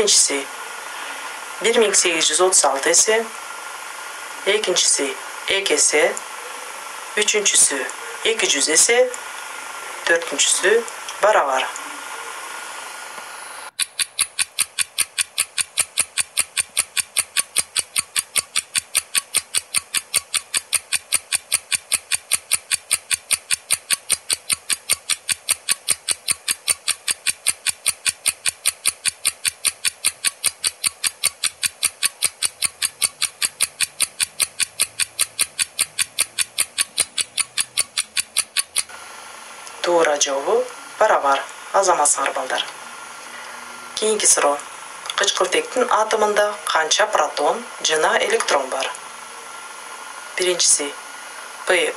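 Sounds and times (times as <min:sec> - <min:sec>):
clock ticking: 0:13.8 - 0:38.9.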